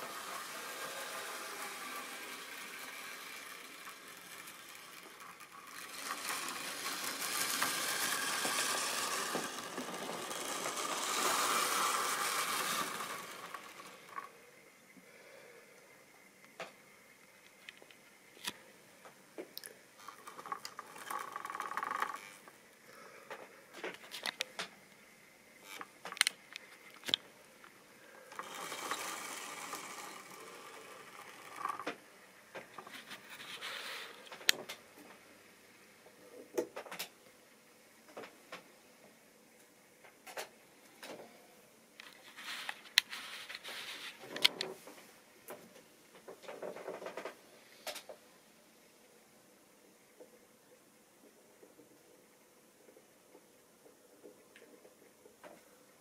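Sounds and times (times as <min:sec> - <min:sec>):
model train wheels clicking: 0:00.0 - 0:14.5, 0:20.0 - 0:22.5, 0:25.6 - 0:34.8
model train whirring hum: 0:00.0 - 0:19.1, 0:20.0 - 0:22.6, 0:23.2 - 0:36.4.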